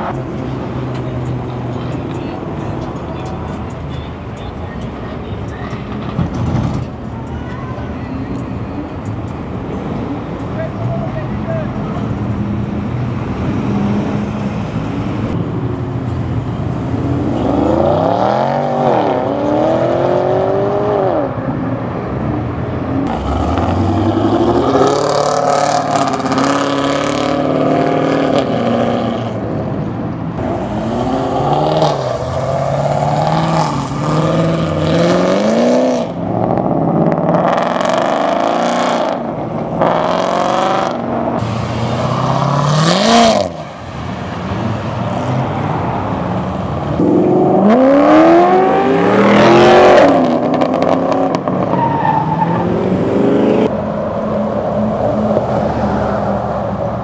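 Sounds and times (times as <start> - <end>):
cars accelerating hard: 16.9 - 29.8, 30.4 - 57.0.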